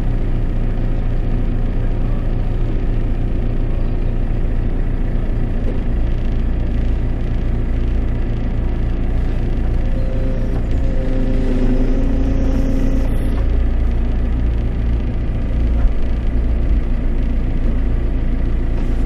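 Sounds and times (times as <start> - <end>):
diesel engine running: 0.0 - 19.0
higher steady hum: 8.9 - 16.4.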